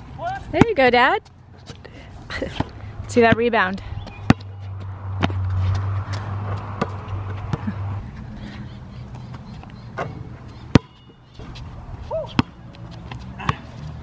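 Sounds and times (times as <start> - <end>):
basketball bouncing on hard court: 4.1 - 4.5, 10.0 - 11.6
shoe squeak: 8.7 - 13.6.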